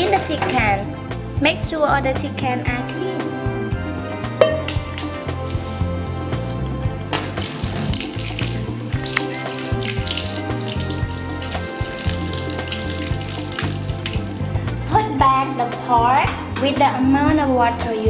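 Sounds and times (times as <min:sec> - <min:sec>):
background music: 0:00.0 - 0:18.0
tap water running into steel sink: 0:04.4 - 0:05.3, 0:06.4 - 0:14.5.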